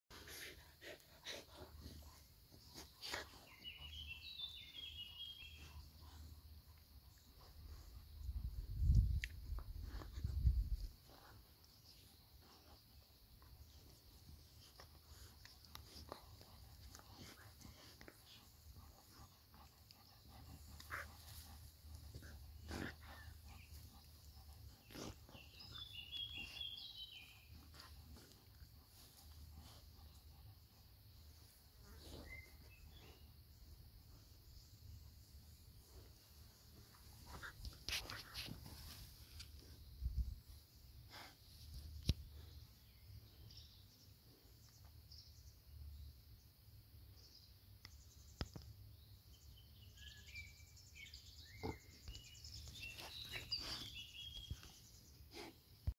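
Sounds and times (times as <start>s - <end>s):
bird chirping: 0.4s - 9.0s, 11.1s - 55.9s
dog licking and sniffing: 35.8s - 39.7s.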